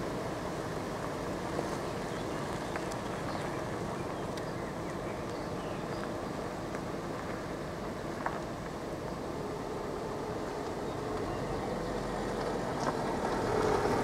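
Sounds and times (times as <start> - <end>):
vehicle idling: 0.0 - 14.0
faint ticks: 2.5 - 3.5.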